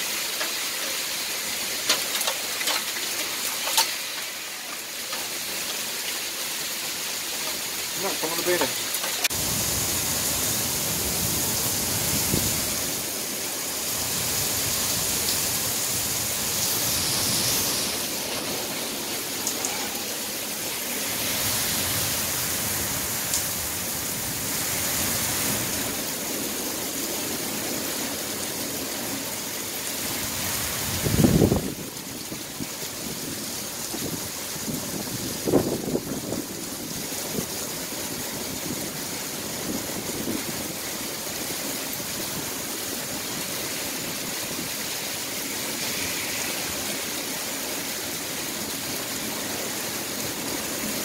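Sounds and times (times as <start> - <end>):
heavy rain hissing: 0.0 - 51.0.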